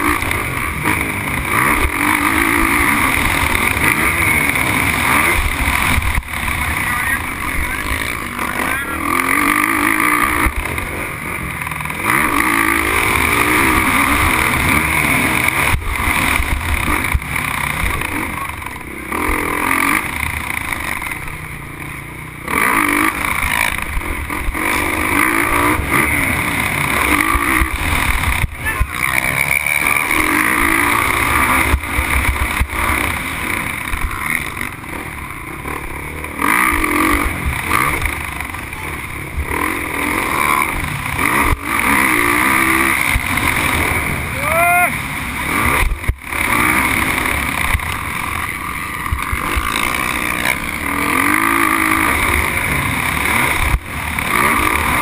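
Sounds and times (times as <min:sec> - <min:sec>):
motocross bike engine: 0:00.0 - 0:55.0.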